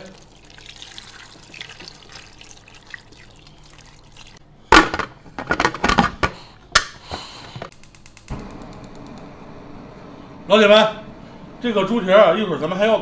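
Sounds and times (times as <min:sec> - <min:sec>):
water pouring into a pot: 0:00.0 - 0:04.4.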